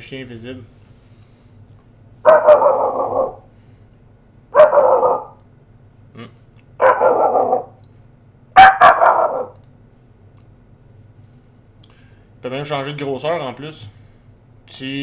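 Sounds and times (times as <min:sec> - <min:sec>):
man imitating dog barking: 0:04.6 - 0:05.4, 0:08.6 - 0:09.6.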